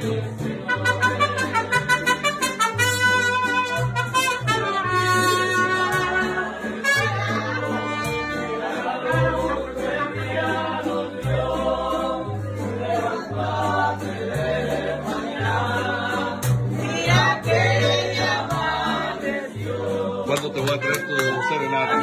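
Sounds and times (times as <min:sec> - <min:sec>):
band singing together: 0:00.0 - 0:01.9, 0:05.9 - 0:20.9
guitar accompaniment: 0:00.0 - 0:22.0.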